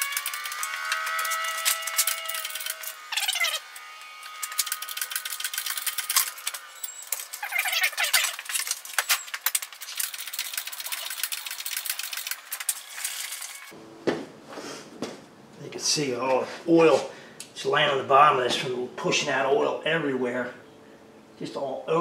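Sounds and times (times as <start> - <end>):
metal parts clicking and rattling: 0.0 - 3.6, 4.3 - 13.7
squeaky falling glides: 6.0 - 9.5.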